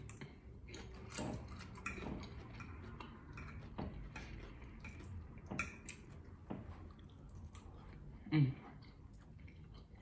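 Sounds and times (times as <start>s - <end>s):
fork in a bowl: 0.0s - 6.4s
chewing food: 0.0s - 10.0s.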